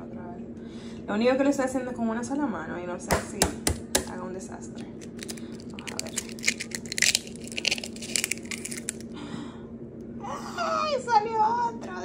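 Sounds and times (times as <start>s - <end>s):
eggshell cracking and crushing: 4.8s - 9.2s.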